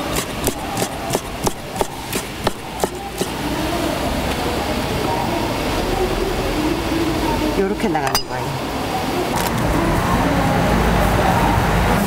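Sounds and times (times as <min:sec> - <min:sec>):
knife chopping on wooden board: 0:00.0 - 0:03.3
market chatter: 0:00.0 - 0:12.0.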